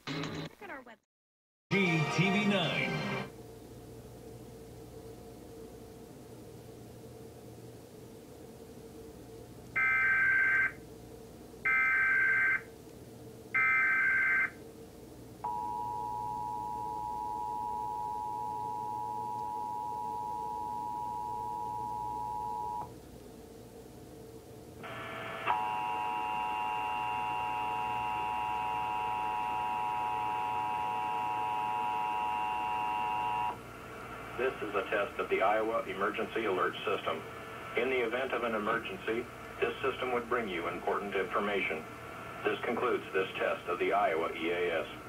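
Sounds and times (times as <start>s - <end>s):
two-tone attention signal: 15.4s - 22.9s.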